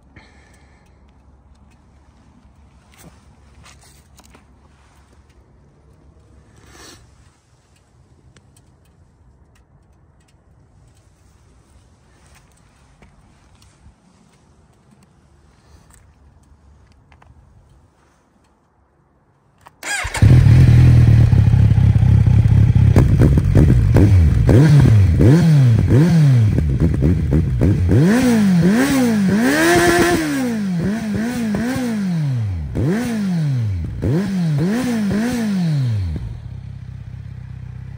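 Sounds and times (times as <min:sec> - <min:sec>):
motorcycle engine starting and revving: 0:19.8 - 0:37.9.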